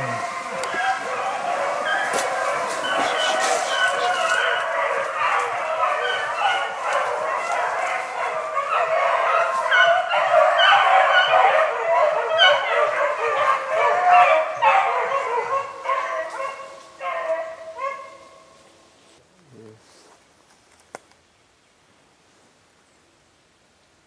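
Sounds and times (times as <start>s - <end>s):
pack of dogs baying: 0.0s - 18.6s.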